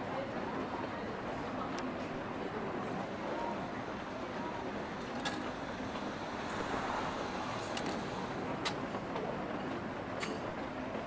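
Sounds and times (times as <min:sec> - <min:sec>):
traffic on a wet street: 0:05.0 - 0:09.0.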